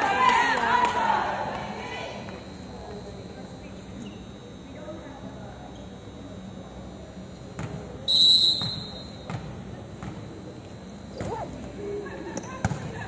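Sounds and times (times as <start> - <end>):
sharp whistle blast: 8.1 - 9.2.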